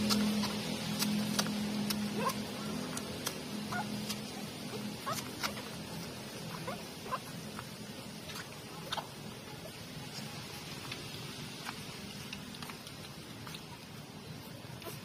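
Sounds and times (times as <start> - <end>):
low hum: 0.0 - 15.0
puppies squeaking: 2.0 - 3.0, 3.6 - 7.6.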